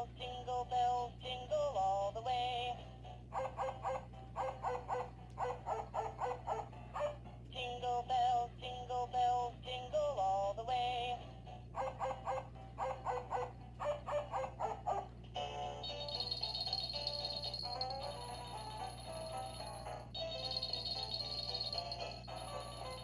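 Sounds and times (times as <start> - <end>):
tinny electronic toy tune: 15.4 - 23.0.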